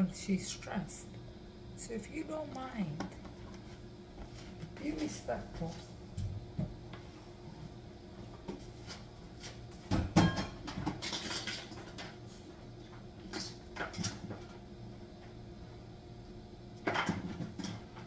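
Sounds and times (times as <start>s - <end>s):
steady low hum: 0.0s - 18.0s
kitchen clicks and knocks: 9.9s - 12.2s.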